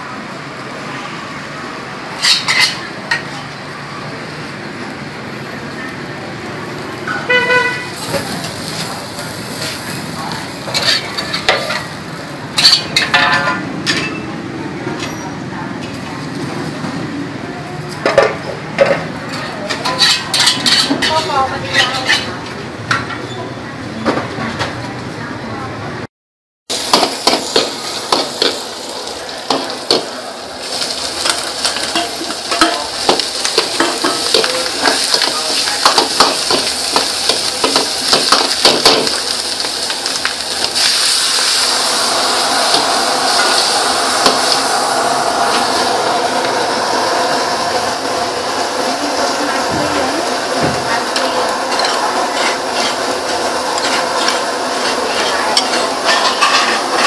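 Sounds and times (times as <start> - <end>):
metal ladle scraping wok: 2.1 - 3.3, 8.0 - 14.3, 19.3 - 22.4, 30.7 - 39.2, 40.7 - 48.2, 51.0 - 57.0
garlic sizzling in oil: 4.2 - 13.1, 26.7 - 57.0.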